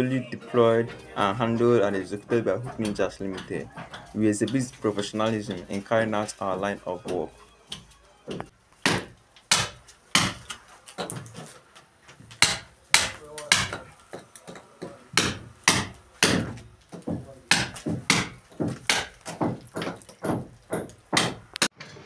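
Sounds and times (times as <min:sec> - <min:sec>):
hammer striking chisel into concrete: 0:07.7 - 0:11.2, 0:12.4 - 0:21.7.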